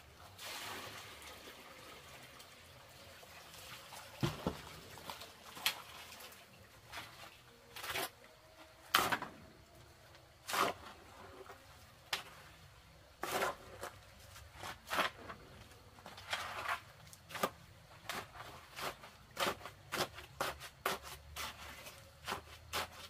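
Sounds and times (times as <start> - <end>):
hoe chopping and scraping sand: 8.8 - 9.4, 10.4 - 11.3, 13.2 - 15.4, 16.2 - 23.0.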